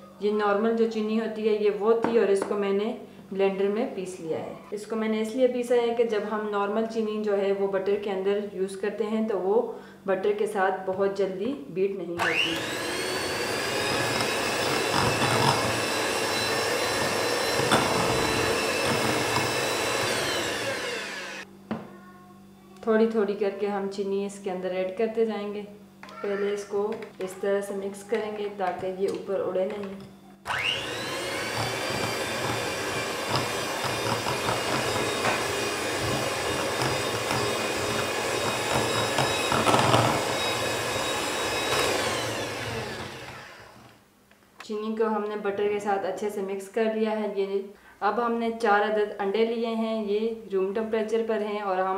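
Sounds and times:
electric mixer whining: 12.2s - 21.5s, 30.5s - 44.0s.

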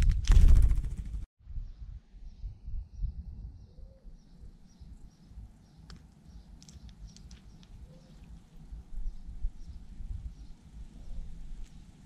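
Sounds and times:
songbirds chirping: 1.5s - 12.0s.

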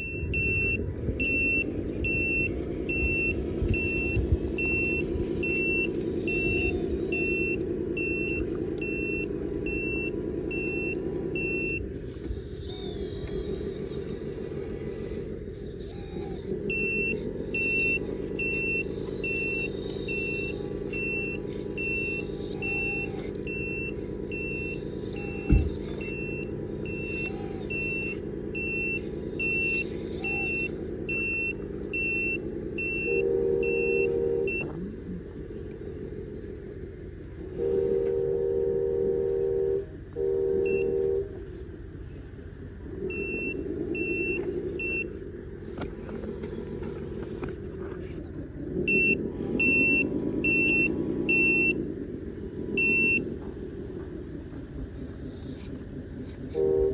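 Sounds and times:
reversing beeper: 0.0s - 34.8s, 37.5s - 41.3s, 43.0s - 45.2s, 48.8s - 51.9s, 52.8s - 53.4s, 56.5s - 56.9s
simulated diesel engine running: 0.0s - 56.9s
loud horn blasts: 33.0s - 34.6s, 37.5s - 41.4s, 56.5s - 56.9s.

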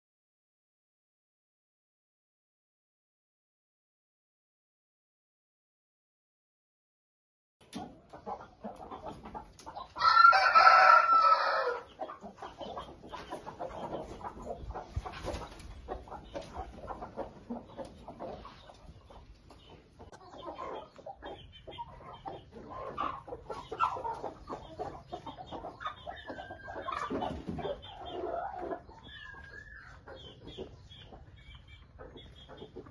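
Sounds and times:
chickens clucking: 7.6s - 32.9s
rooster crowing: 10.0s - 11.9s.

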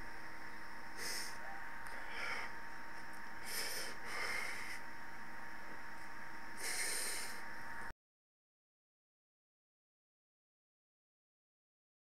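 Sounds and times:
electrical hum and hiss: 0.0s - 7.9s
person breathing out through nose: 1.0s - 2.6s, 3.4s - 4.8s, 6.6s - 7.5s.

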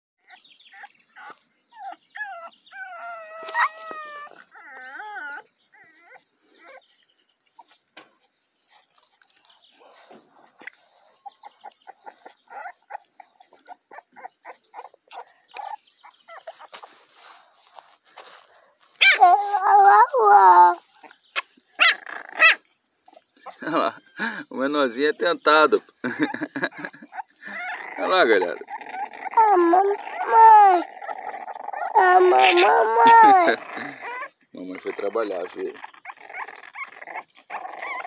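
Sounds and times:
puppies whining: 0.2s - 38.0s
rustling in grass: 16.4s - 19.7s.

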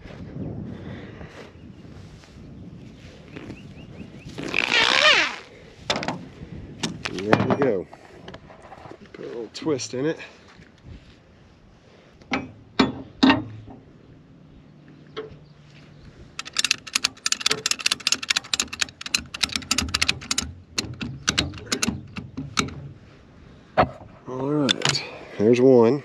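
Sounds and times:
ratchet strap pawl clicking: 16.4s - 22.7s.

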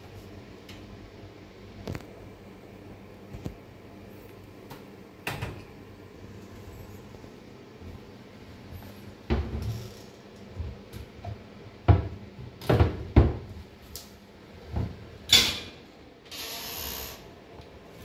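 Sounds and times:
cabinet doors knocking and thudding: 11.9s - 13.5s.

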